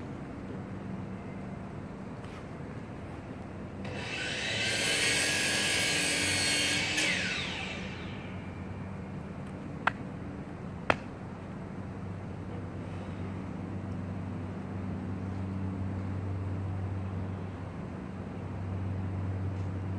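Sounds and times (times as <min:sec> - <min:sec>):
steady low hum: 0:00.0 - 0:19.9
high-pitched machine whine: 0:03.8 - 0:09.3.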